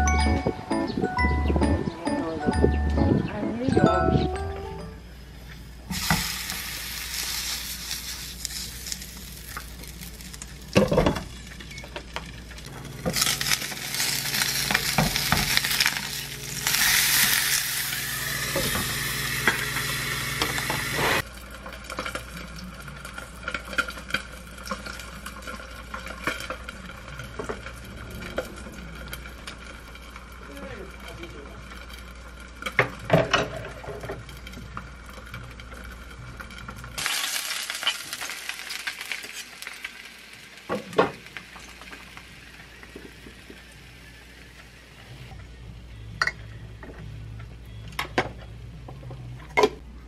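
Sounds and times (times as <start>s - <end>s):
fish sizzling in oil: 5.6s - 28.3s, 33.8s - 45.3s.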